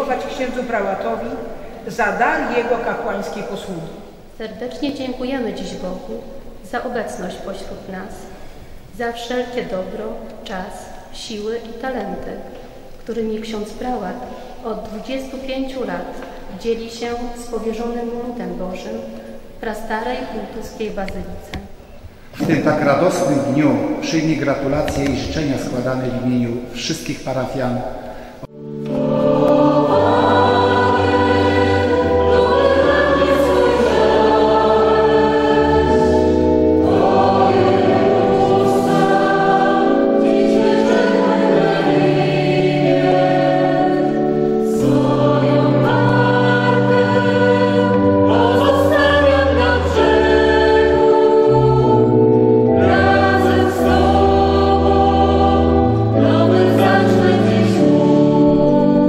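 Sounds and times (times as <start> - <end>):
choir singing a slow hymn: 0.0 - 4.4, 27.8 - 59.0
organ bass notes: 28.5 - 59.0.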